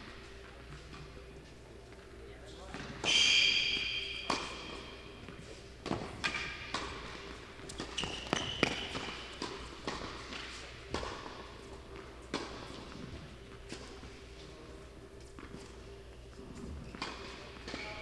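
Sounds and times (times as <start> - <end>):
tennis ball struck by rackets: 2.7 - 4.9, 5.8 - 11.4
tennis ball bouncing on court: 2.7 - 13.0, 16.8 - 17.8
high squeak: 3.0 - 4.6.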